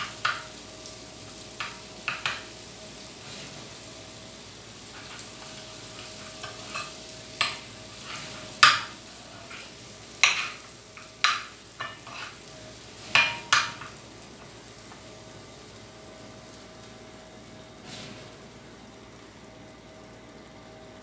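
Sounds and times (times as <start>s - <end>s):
butter sizzling in frying pan: 0.0s - 21.0s
metal spoon scraping and knocking pan: 4.9s - 12.4s, 13.0s - 14.0s.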